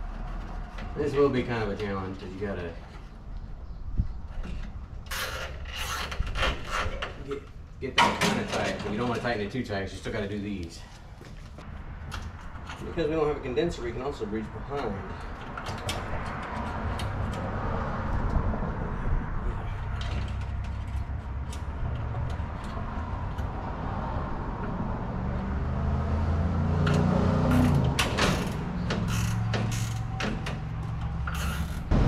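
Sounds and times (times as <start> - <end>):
plastic creaks: 27.5 - 31.9.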